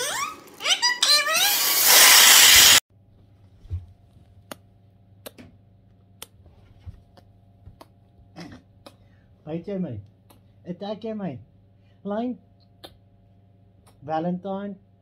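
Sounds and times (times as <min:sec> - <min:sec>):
helium hissing into balloon: 0:01.4 - 0:02.8.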